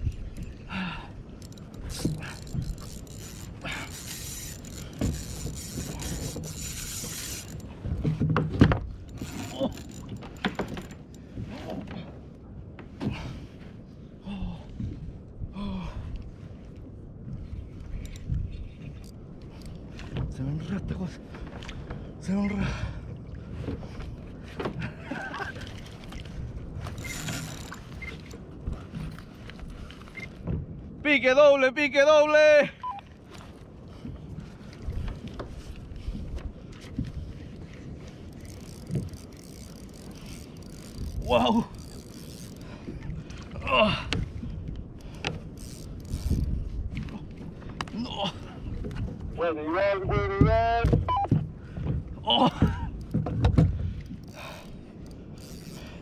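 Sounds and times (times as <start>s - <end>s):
wind buffeting microphone: 0.0s - 31.2s, 33.2s - 56.0s
fishing reel clicks and rattles: 1.4s - 7.7s, 9.1s - 11.2s, 26.9s - 28.3s, 38.3s - 42.7s, 45.0s - 46.6s, 54.1s - 56.0s.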